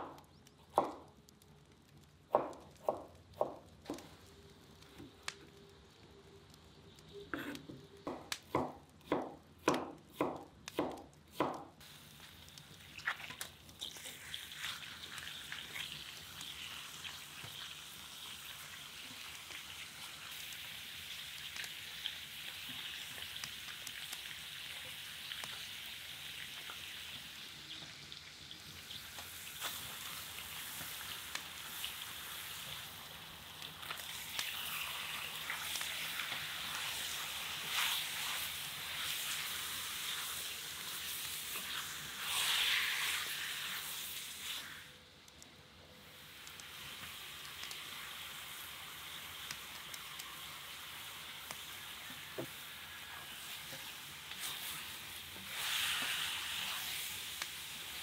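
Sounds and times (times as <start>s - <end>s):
meat sizzling: 0.0s - 45.3s, 45.9s - 58.0s
knife chopping on wooden board: 8.1s - 11.7s.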